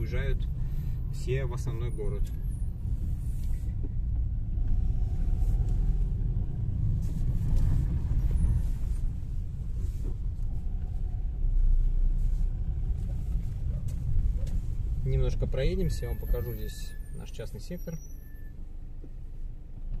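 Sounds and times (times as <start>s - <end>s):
car engine and road noise: 0.0s - 20.0s.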